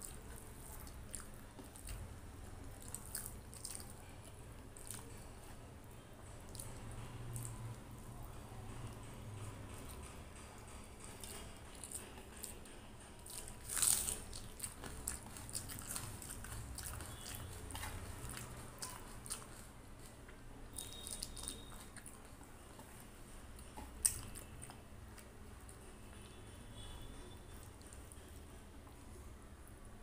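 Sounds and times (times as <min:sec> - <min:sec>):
chewing: 0:00.0 - 0:29.0.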